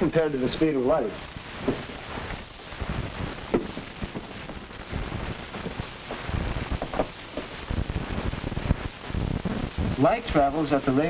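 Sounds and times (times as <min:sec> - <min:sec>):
old film soundtrack hiss and crackle: 0:00.0 - 0:11.0
low thumps: 0:01.4 - 0:10.0.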